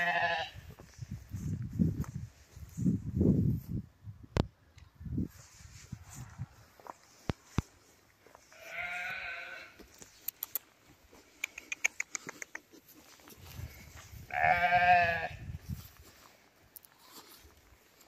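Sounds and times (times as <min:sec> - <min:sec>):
sheep bleating: 0:00.0 - 0:00.6, 0:08.5 - 0:09.8, 0:14.3 - 0:15.4
sharp clicks: 0:10.2 - 0:10.7, 0:11.3 - 0:12.8.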